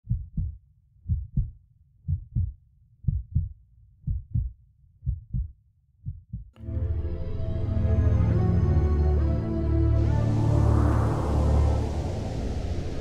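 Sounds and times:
heartbeat thumps: 0.0s - 6.5s
music with sustained low tones: 6.6s - 13.0s.

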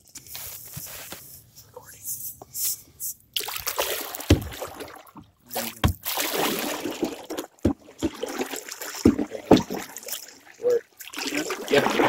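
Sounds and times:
paddle swishing in water: 3.4s - 12.0s
dull knocks on canoe hull: 4.3s - 4.6s, 5.8s - 6.1s, 9.0s - 9.8s.

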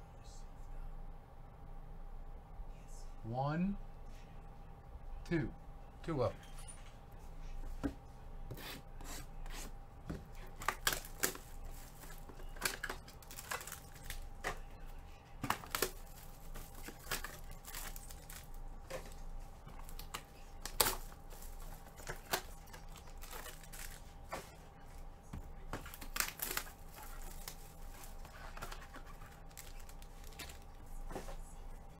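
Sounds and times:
foil card packs crinkling: 10.5s - 14.7s, 15.4s - 24.1s, 25.7s - 31.5s.

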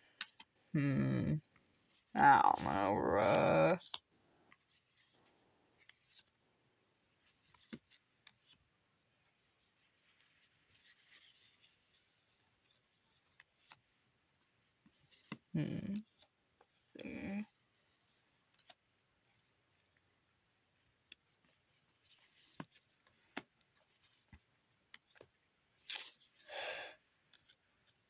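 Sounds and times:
short wordless vocal sounds: 0.8s - 1.5s, 2.2s - 3.8s, 15.6s - 16.0s.

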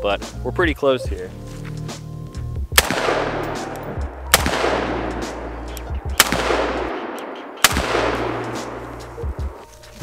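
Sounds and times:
rifle shots with echo: 2.8s - 9.6s.

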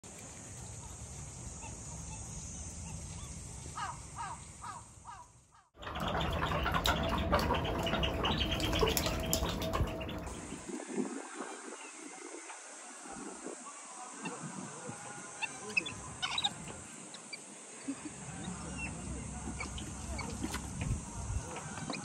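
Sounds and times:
many bird calls: 2.0s - 10.6s, 15.2s - 22.0s.

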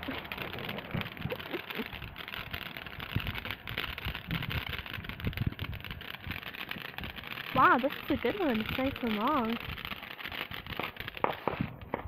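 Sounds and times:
firework hissing and crackling: 0.0s - 12.0s.

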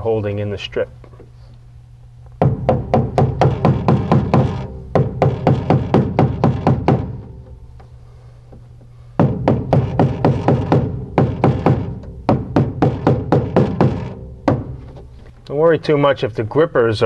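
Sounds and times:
small hammer rapping metal: 2.4s - 7.6s, 9.2s - 15.0s.

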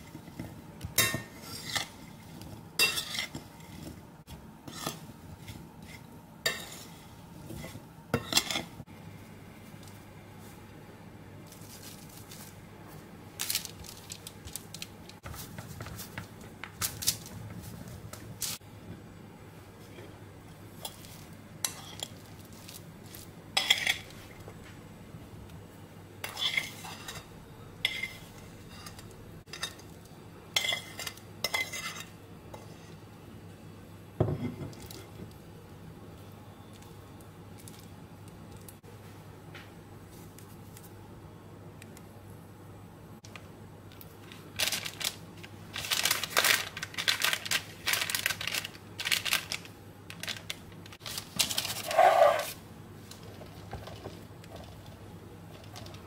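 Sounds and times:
metal spoon scraping ceramic bowl: 51.8s - 52.6s.

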